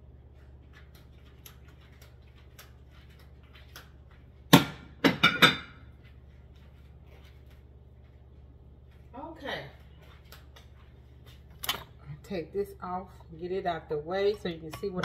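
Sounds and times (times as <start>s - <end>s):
kitchenware clattering on counter: 5.0s - 5.9s.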